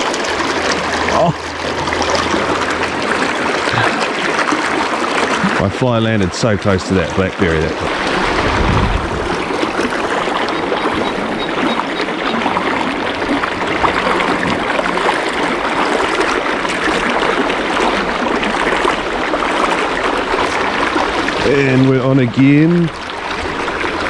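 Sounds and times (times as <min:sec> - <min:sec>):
river rushing over rocks: 0:07.6 - 0:10.8.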